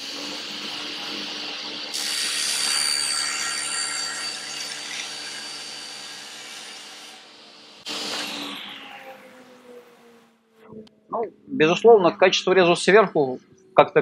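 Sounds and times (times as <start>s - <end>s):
table saw cutting plywood: 0.0s - 10.8s
saw blade winding down: 1.9s - 10.2s.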